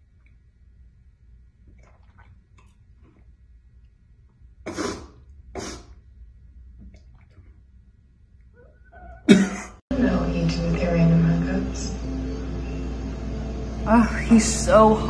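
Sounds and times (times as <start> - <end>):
person coughing: 9.3 - 9.8.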